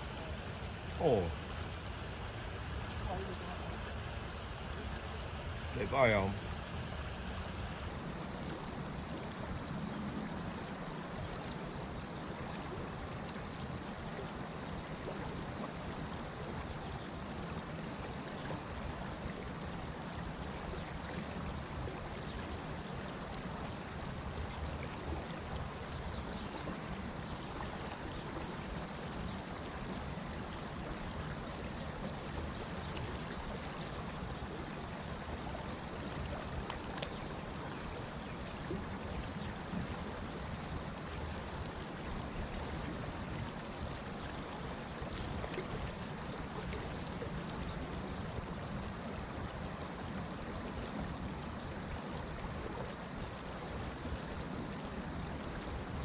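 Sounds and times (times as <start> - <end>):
creek water running over stones: 0.0 - 56.0.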